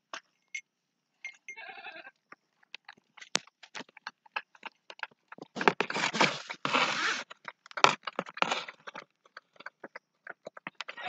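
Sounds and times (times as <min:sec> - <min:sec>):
scraping and slurping: 0:03.7 - 0:11.0.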